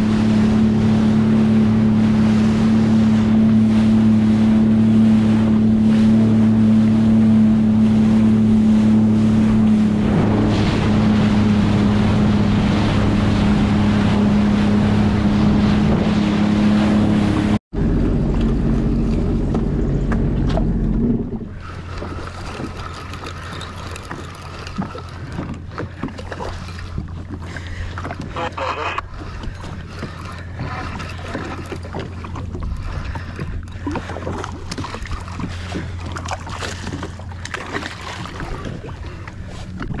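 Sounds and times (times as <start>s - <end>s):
jet ski engine running: 0.0s - 40.0s
water rushing past: 20.3s - 39.2s.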